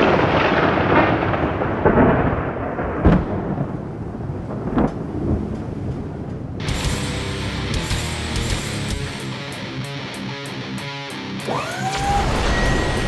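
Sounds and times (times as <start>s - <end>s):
rolling thunder rumble: 0.0s - 6.9s, 12.1s - 13.0s
sharp thunder crack: 0.0s - 7.3s, 12.0s - 13.0s.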